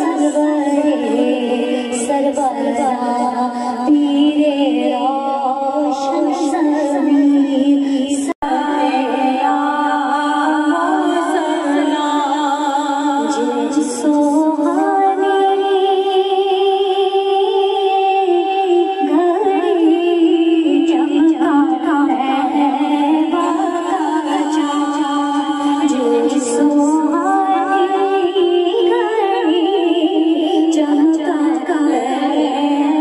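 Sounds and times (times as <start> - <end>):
women singing a hymn unaccompanied: 0.0 - 33.0.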